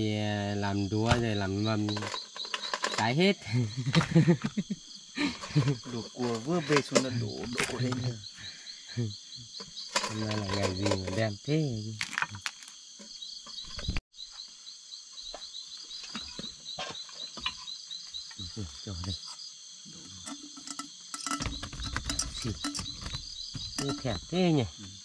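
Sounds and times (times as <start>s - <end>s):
cricket chirping: 0.0s - 25.0s
insects droning: 0.0s - 25.0s
clicks and knocks: 1.8s - 3.1s, 20.2s - 24.3s.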